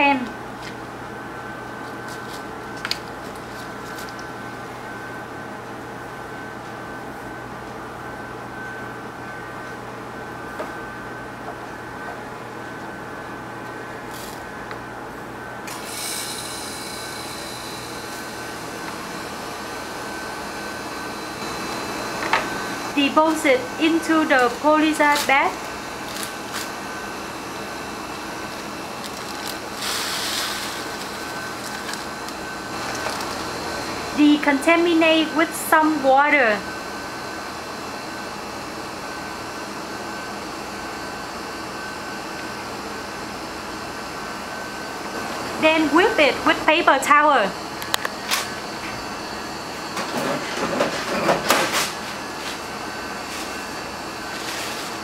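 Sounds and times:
ventilation hum: 0.0 - 55.0
plastic bag rustling: 28.4 - 33.5.

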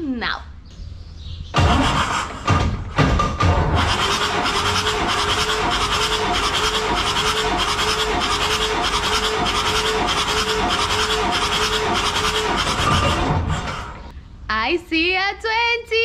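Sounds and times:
diesel engine cranking on starter: 1.6 - 14.1.

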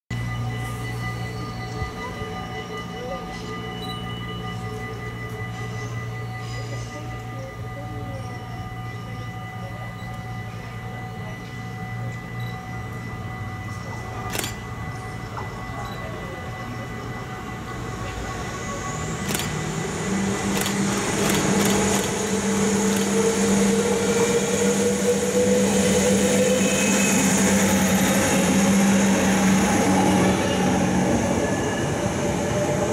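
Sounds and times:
diesel train engine drone: 0.1 - 32.9
wheels on rails: 19.1 - 23.6.

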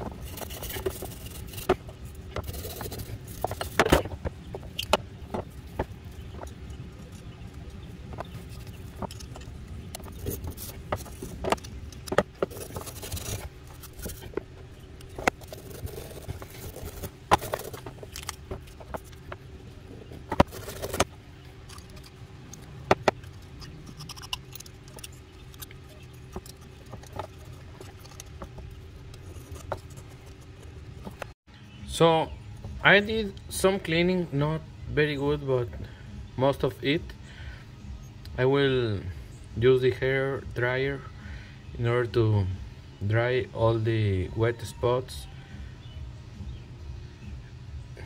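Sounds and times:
wire brush scrubbing metal: 0.0 - 4.0, 8.1 - 14.4, 15.0 - 19.3
low hum: 0.0 - 44.3
metal tools clicking and tapping: 20.3 - 31.3.

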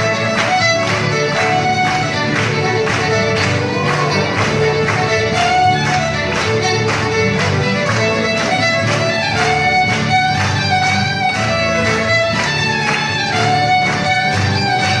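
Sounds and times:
acoustic guitars strumming: 0.0 - 15.0
fiddles playing lively tune: 0.0 - 15.0.

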